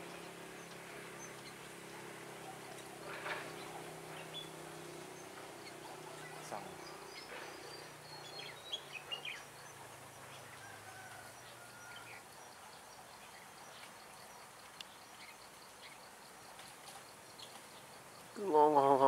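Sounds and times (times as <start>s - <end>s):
background hiss: 0.0s - 19.0s
birds chirping and whistling: 2.5s - 9.8s.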